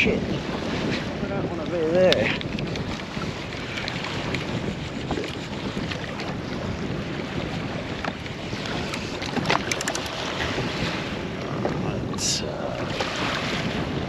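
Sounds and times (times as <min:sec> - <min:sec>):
sea water slapping hull: 0:00.0 - 0:14.0
wind buffeting microphone: 0:00.0 - 0:14.0.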